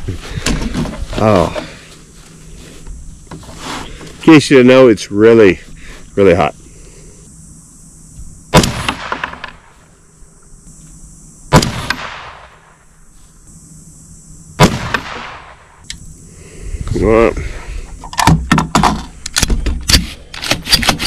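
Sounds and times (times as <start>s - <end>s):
rifle shots: 8.5s - 9.7s, 11.5s - 12.7s, 14.6s - 15.6s.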